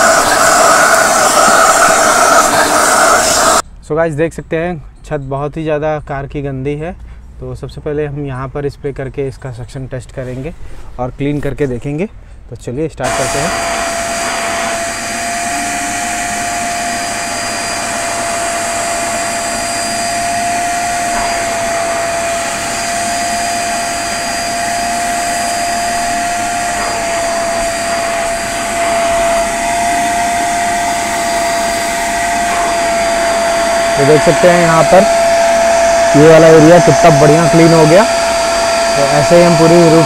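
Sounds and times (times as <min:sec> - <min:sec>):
vacuum cleaner whining: 0:00.0 - 0:03.6, 0:13.0 - 0:40.0.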